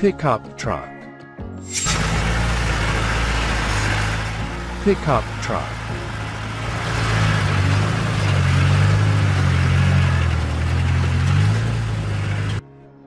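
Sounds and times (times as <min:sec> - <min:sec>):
truck engine running under load: 0:01.7 - 0:12.6.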